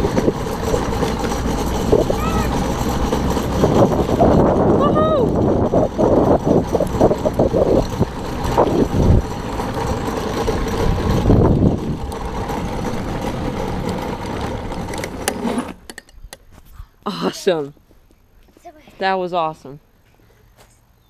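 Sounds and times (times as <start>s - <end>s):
go-kart wheels rumbling on asphalt: 0.0s - 16.7s.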